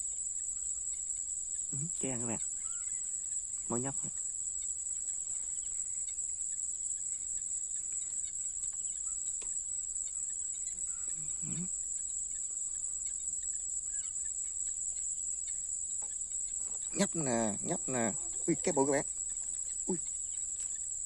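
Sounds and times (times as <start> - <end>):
night insects chirring: 0.0 - 21.0.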